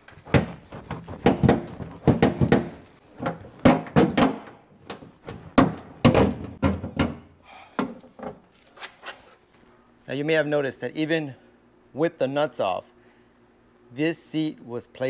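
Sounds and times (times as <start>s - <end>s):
heavy seat knocking and thumping: 0.2s - 4.5s, 5.3s - 7.3s.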